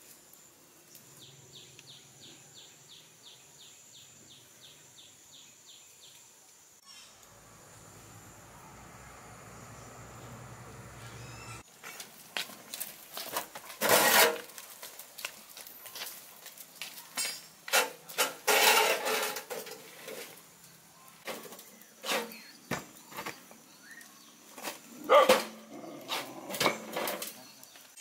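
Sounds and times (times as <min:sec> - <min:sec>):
concrete blocks clunking and scraping: 0:11.7 - 0:20.4, 0:21.2 - 0:23.6, 0:24.6 - 0:28.0.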